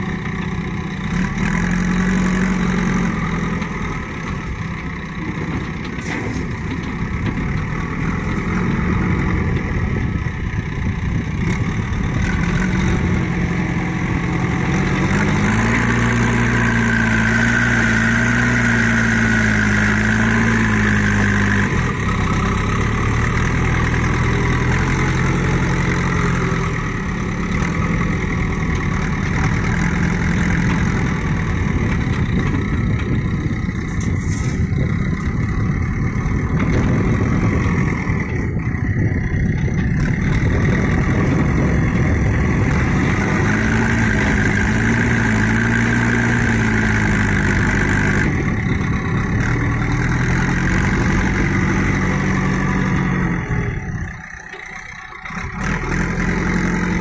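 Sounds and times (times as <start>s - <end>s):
diesel engine revving with whine: 0.0s - 57.0s.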